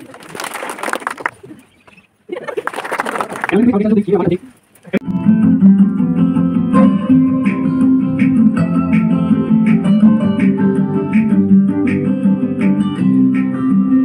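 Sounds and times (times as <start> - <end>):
acoustic guitar strumming: 5.0 - 14.0.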